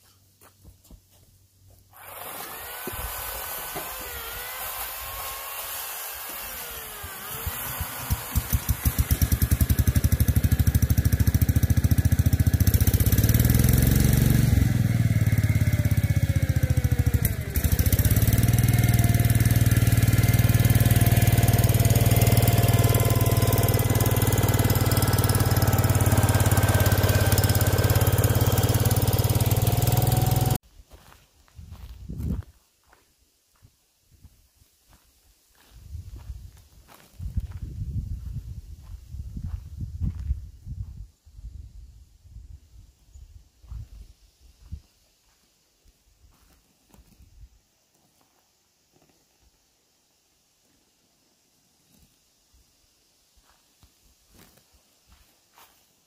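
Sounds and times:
lawn tractor engine running: 6.5s - 30.6s.

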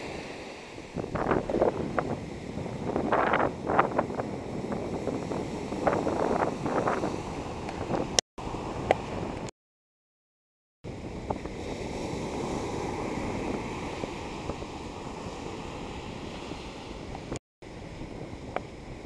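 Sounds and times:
ocean surf breaking: 0.0s - 9.5s, 10.9s - 19.0s
wind buffeting microphone: 0.0s - 9.5s, 10.9s - 19.0s.

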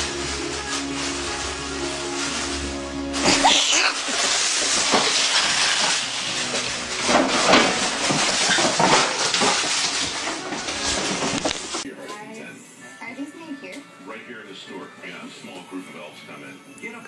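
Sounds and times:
hissing noise with pitch glides: 0.0s - 6.7s
background music with held notes: 0.0s - 17.0s.

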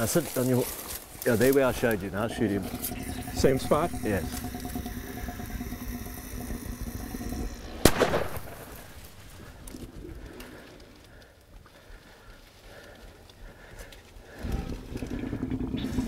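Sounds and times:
rifle shot with echo: 7.8s - 8.6s.

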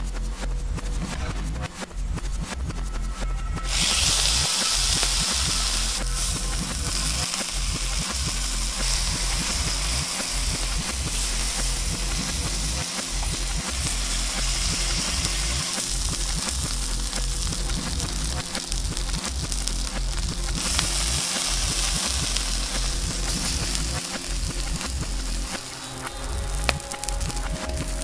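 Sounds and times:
steak sizzling in hot oil: 3.7s - 25.5s.

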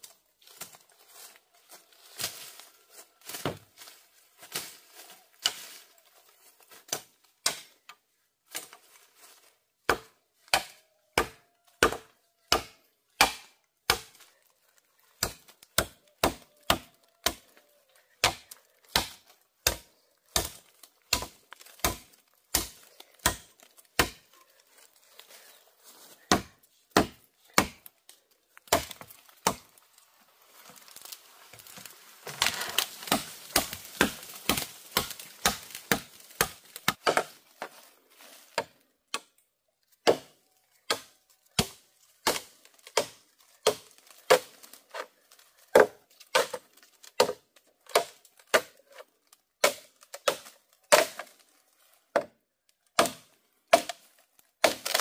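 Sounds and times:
blade chopping bamboo: 9.9s - 14.2s, 15.2s - 17.5s, 18.2s - 24.3s, 26.2s - 27.9s, 28.7s - 29.7s, 31.0s - 37.4s, 40.0s - 45.1s, 45.7s - 49.0s, 49.6s - 51.4s, 53.0s - 55.0s.

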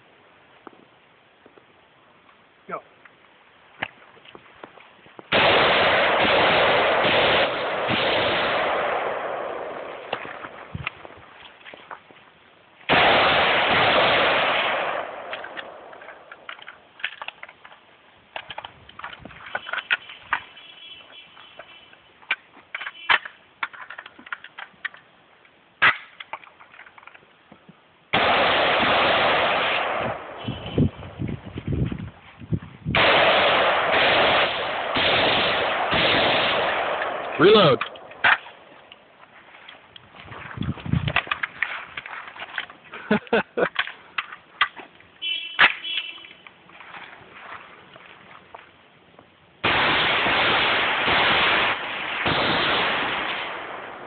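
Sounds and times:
rifle gunshots: 5.3s - 10.8s, 12.9s - 16.5s, 28.1s - 30.7s, 33.0s - 38.7s, 49.6s - 54.0s
smaller clicks and cracks: 15.2s - 20.6s, 21.6s - 27.7s, 36.7s - 48.7s.

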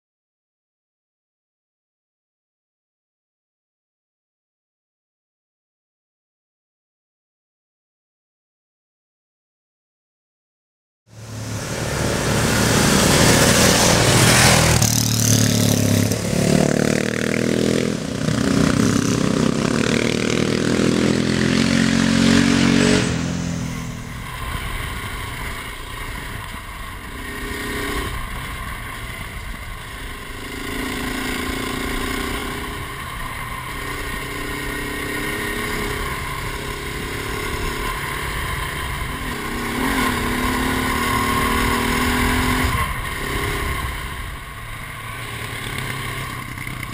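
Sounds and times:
motorcycle engine revving: 11.1s - 46.9s.

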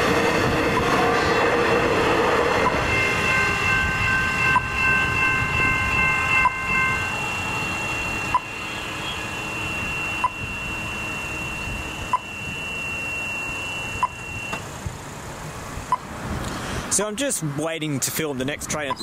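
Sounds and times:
low traffic rumble: 0.0s - 19.0s
level crossing bells ringing: 2.5s - 14.6s, 18.7s - 19.0s.

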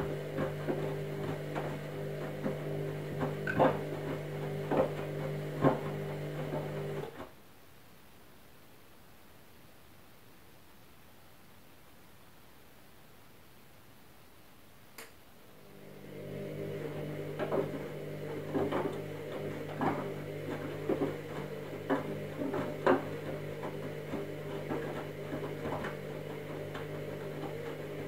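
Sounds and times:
washing machine motor hum: 0.0s - 7.3s, 15.5s - 28.0s
washing machine click: 3.4s - 3.9s.

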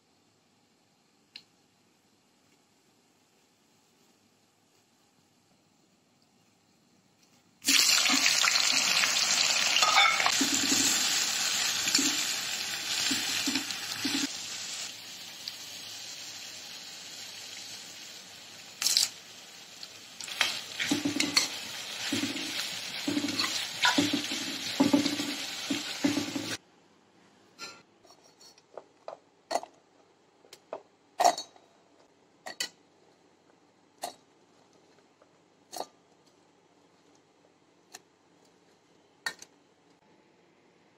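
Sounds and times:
onions sizzling in hot oil: 7.6s - 26.6s
spoon clinking against pan: 9.8s - 10.3s.

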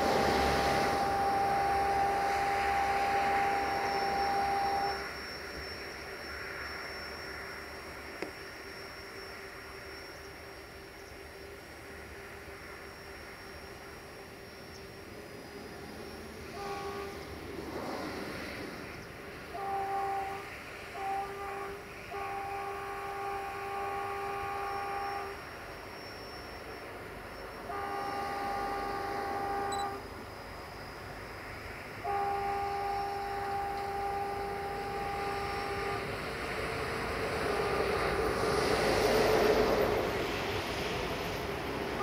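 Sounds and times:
locomotive horn: 0.0s - 5.8s, 16.0s - 26.2s, 27.4s - 30.5s, 31.8s - 42.0s
locomotive rumble: 0.0s - 42.0s.

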